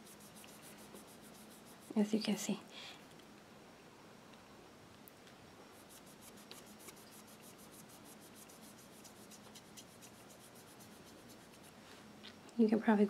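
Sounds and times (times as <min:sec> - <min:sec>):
sponge applicator scratching on nail: 0:00.0 - 0:02.0, 0:05.8 - 0:11.8.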